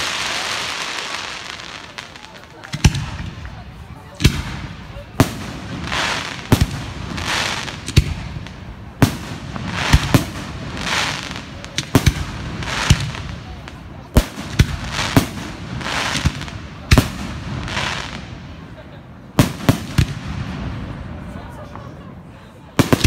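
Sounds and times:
fireworks hissing: 0.0 - 20.9.

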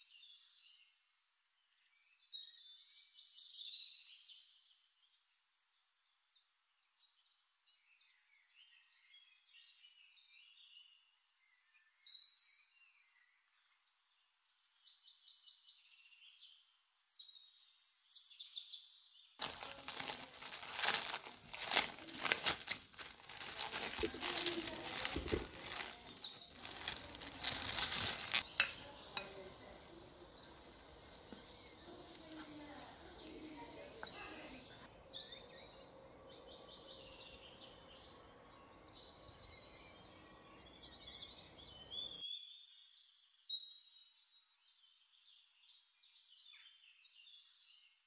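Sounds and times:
cling film crinkling: 19.4 - 28.4.

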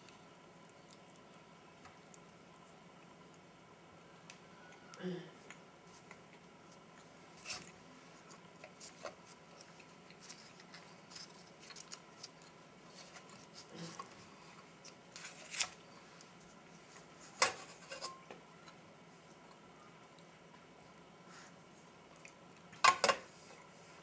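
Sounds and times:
food packaging crinkling: 6.0 - 13.8, 14.7 - 18.0.

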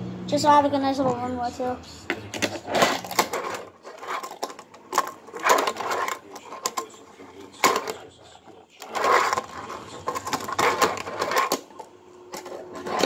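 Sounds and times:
deck clacking on surface: 2.1 - 8.0, 8.8 - 13.0.

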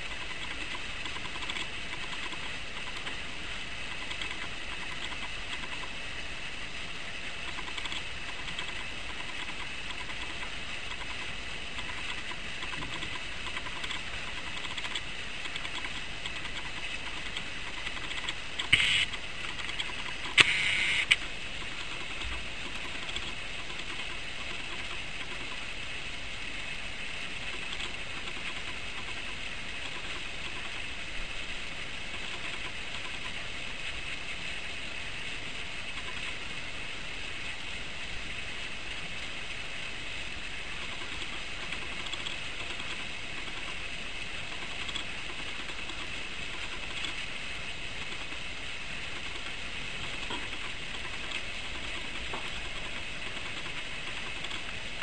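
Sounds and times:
steady background hiss: 0.0 - 55.0.

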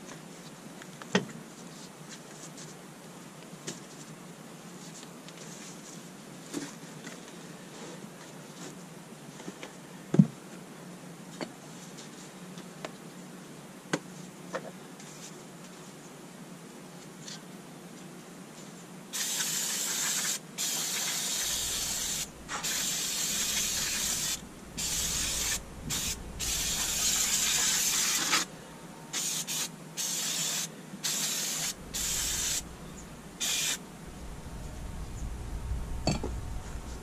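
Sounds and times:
aerosol spray can spraying: 19.2 - 28.5, 29.2 - 32.7, 33.4 - 33.8.

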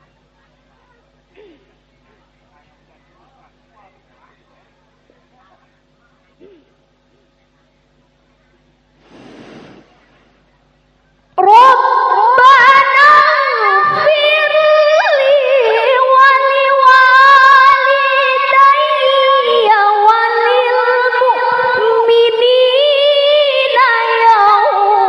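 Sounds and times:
woman reciting melodically: 11.4 - 25.0.

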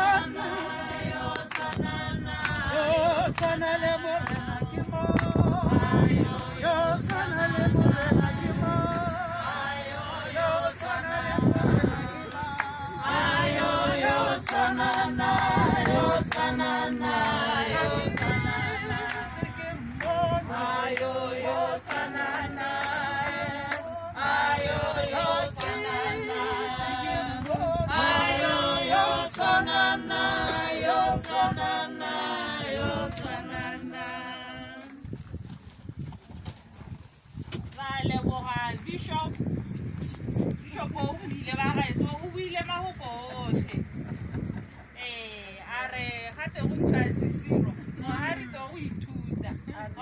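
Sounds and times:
group singing unaccompanied: 0.0 - 35.2.

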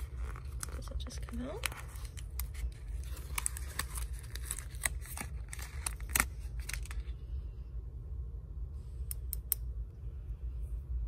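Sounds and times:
paper rustling: 0.0 - 7.1.

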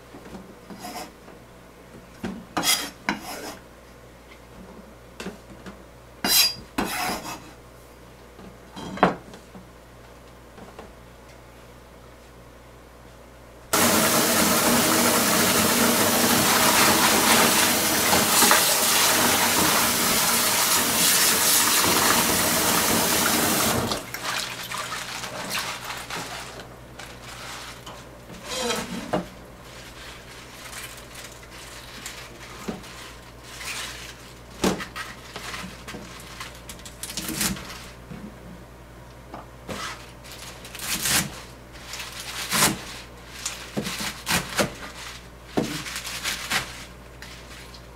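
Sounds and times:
tap running hard: 13.8 - 24.3.

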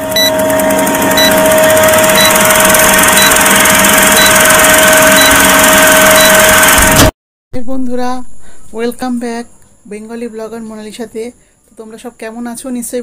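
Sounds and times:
film projector whirr and crackle: 0.0 - 7.1
short high beeps: 2.2 - 3.4, 4.1 - 6.7.

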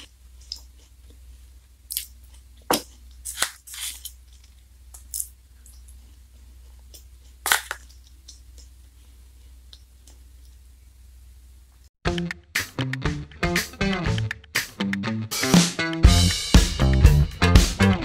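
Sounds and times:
wrappers crinkling: 2.0 - 8.1.

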